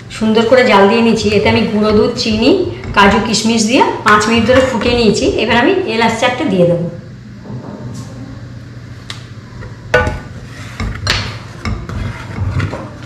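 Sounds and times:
steady low hum: 0:00.0 - 0:13.0
ladle stirring: 0:09.9 - 0:13.0.

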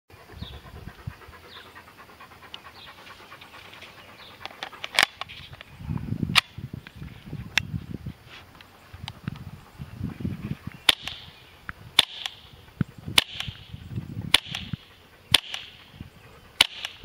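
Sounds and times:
airsoft gun shots cracking: 0:10.9 - 0:11.3, 0:12.0 - 0:12.5, 0:13.1 - 0:15.9, 0:16.6 - 0:17.0.

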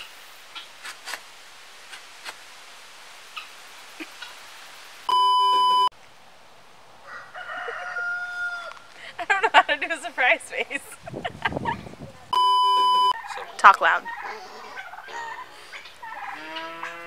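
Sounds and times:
electronic beep: 0:05.1 - 0:05.9, 0:12.4 - 0:13.2.

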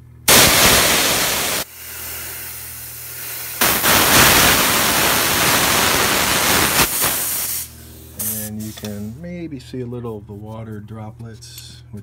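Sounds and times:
high-pressure air hissing: 0:00.3 - 0:08.8.

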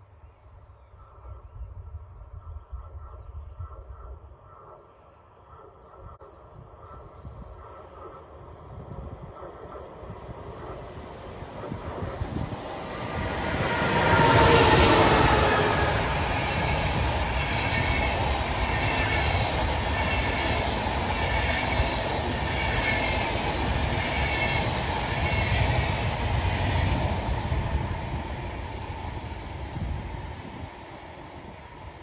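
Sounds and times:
train coaches rumbling: 0:05.6 - 0:32.0
electric locomotive rushing past: 0:07.3 - 0:32.0
train wheels beating rhythmically: 0:07.6 - 0:32.0.

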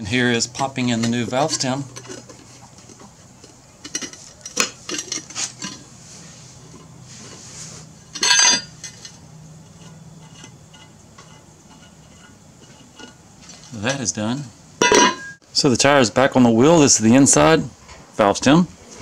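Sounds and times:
metal clinks on wheel rim: 0:00.5 - 0:05.9, 0:08.1 - 0:14.1, 0:14.8 - 0:15.4.

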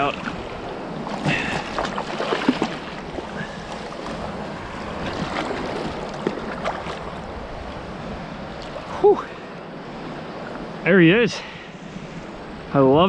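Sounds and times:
surf washing on shore: 0:00.0 - 0:13.0
fish splashing in shallows: 0:00.1 - 0:07.2.

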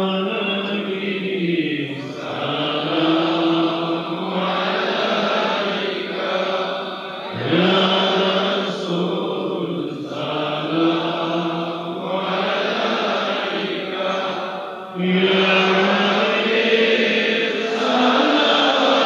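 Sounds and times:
men chanting devotional melody: 0:00.0 - 0:19.0.

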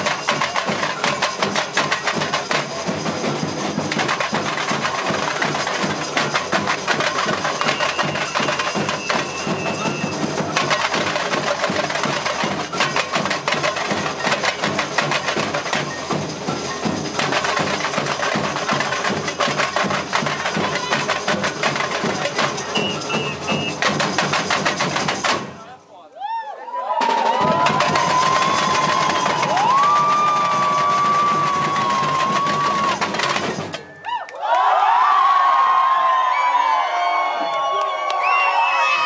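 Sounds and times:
samba drumming: 0:00.0 - 0:25.7, 0:26.9 - 0:34.0
held high tone: 0:07.1 - 0:11.0, 0:22.5 - 0:23.9.

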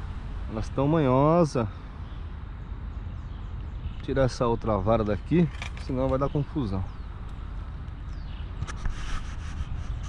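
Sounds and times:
outdoor rumble: 0:03.2 - 0:09.0.

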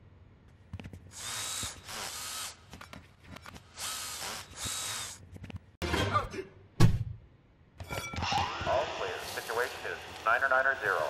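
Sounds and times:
power drills whirring: 0:01.1 - 0:02.8, 0:03.7 - 0:05.2.

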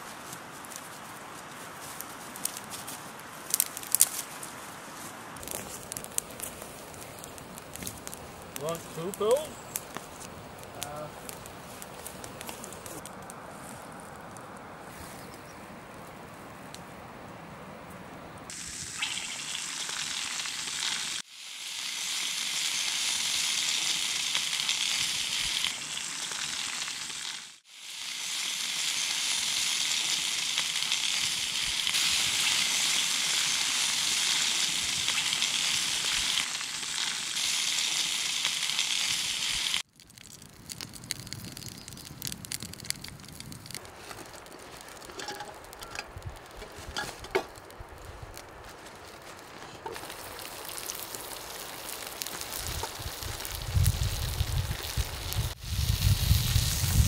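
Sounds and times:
fire crackle: 0:00.0 - 0:57.0
fish sizzling in a pan: 0:18.5 - 0:39.9, 0:50.0 - 0:57.0.

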